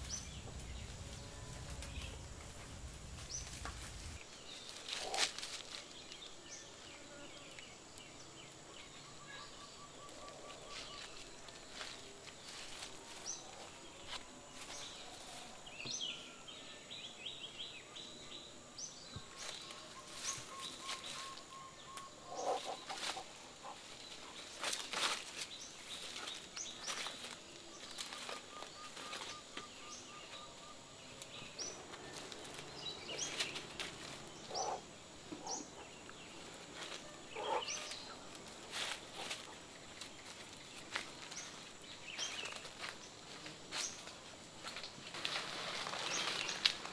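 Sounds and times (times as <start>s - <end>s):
rustling in dry leaves: 0.0s - 6.8s, 10.4s - 15.8s, 19.3s - 21.6s, 22.4s - 29.6s, 31.2s - 34.8s, 36.2s - 46.9s
birds chirping and trilling: 0.0s - 44.3s, 45.2s - 46.9s.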